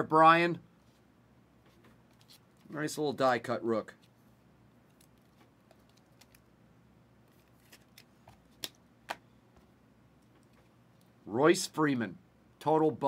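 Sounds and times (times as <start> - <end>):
cards being flipped through: 7.3 - 9.2.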